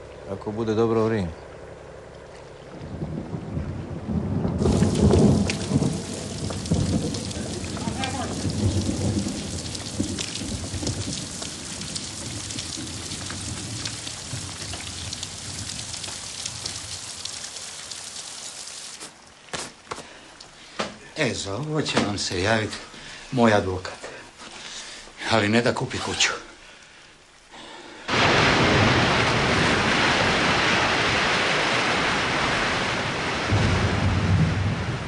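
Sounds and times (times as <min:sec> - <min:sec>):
thunder rumble: 0:02.7 - 0:17.4, 0:28.1 - 0:35.0
heavy rain: 0:02.9 - 0:35.0.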